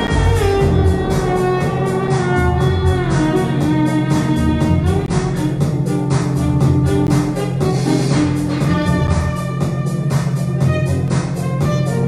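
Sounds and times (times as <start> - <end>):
keyboard accompaniment with beat: 0.0 - 12.0
violin melody: 0.0 - 12.0.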